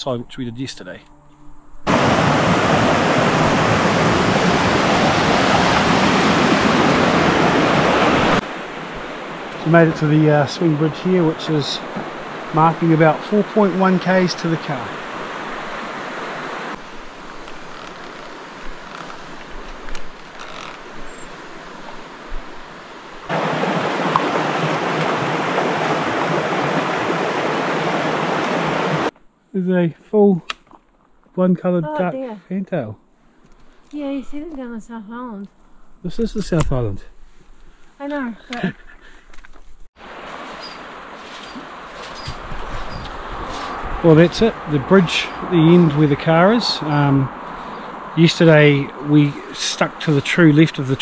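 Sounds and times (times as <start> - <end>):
fast-flowing river roar: 1.9 - 16.7, 23.3 - 29.1.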